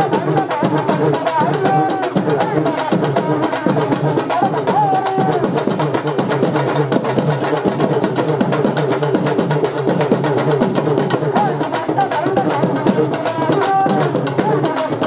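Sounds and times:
drum ensemble fast rhythm: 0.0 - 15.0.

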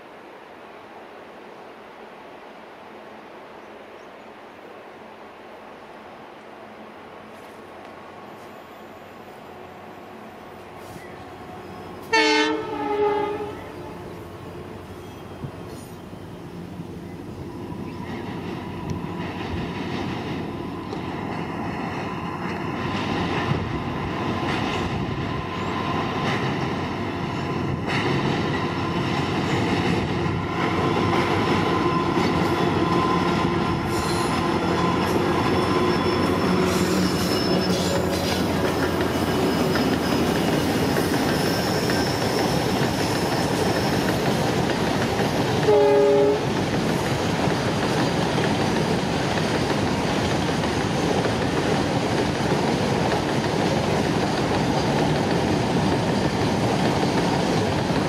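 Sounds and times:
train rumbling over steel bridge: 0.0 - 58.0
locomotive horn blast: 12.0 - 14.1, 45.6 - 46.4
high wheel squeals: 31.5 - 44.4.

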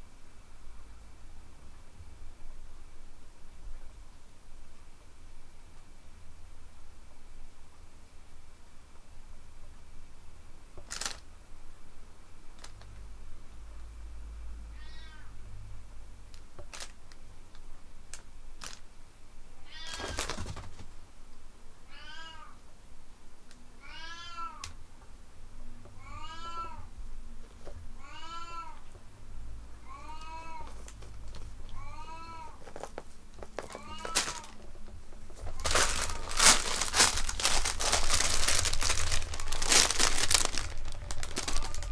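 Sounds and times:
cat meowing: 14.7 - 15.4, 19.6 - 20.2, 21.9 - 22.6, 23.8 - 24.7, 26.0 - 26.9, 28.0 - 28.8, 29.8 - 30.8, 31.7 - 32.6, 33.7 - 34.6, 41.2 - 41.9.

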